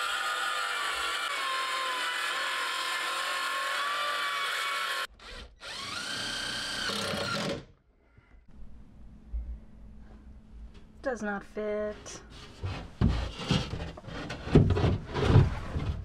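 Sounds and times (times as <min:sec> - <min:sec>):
cordless drill whirring: 0:00.0 - 0:07.7.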